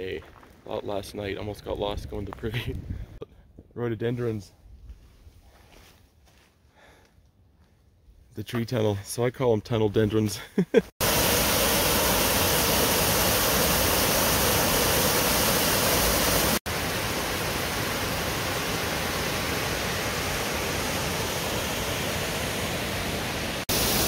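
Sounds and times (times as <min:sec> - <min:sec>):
waterfall rushing: 0:11.0 - 0:24.0.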